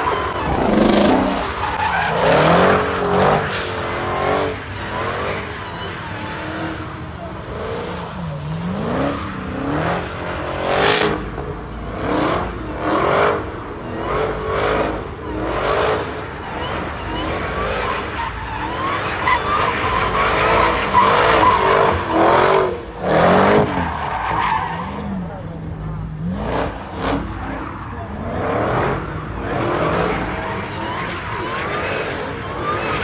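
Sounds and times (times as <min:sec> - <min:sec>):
car engine revving: 0:00.0 - 0:33.0
tyres squealing: 0:16.5 - 0:25.2.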